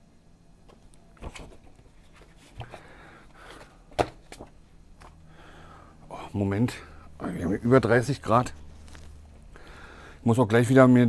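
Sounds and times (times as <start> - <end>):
packaging rustling: 8.7 - 9.2.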